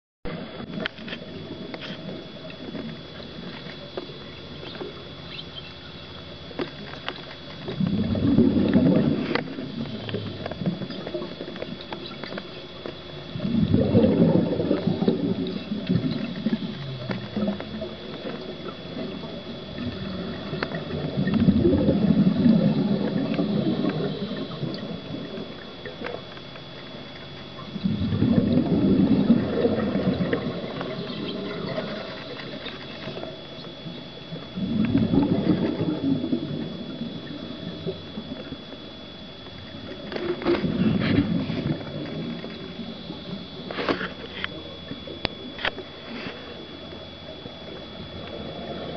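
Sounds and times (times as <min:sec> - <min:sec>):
underwater bubbles gurgling: 0:00.3 - 0:48.9.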